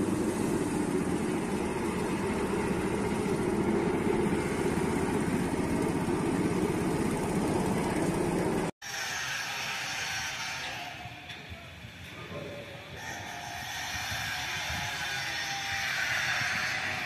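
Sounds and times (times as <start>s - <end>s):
rail trolley engine rumbling: 0.0s - 17.0s.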